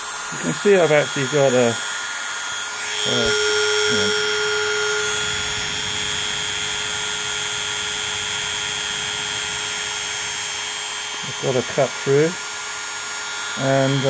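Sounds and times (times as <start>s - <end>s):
rotary tool grinding glass: 2.9s - 10.4s.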